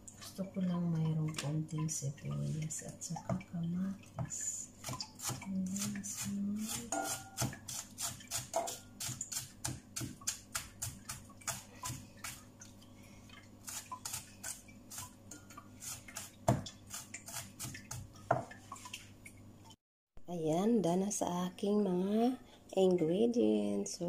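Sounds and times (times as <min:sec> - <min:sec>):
knife chopping on cutting board: 0:04.8 - 0:12.4, 0:15.8 - 0:18.5.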